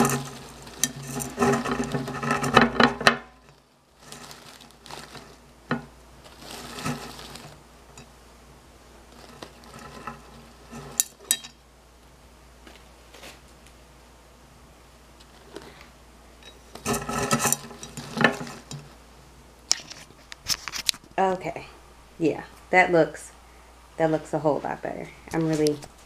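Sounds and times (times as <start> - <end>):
pebbles poured into glass vase: 6.2 - 7.6.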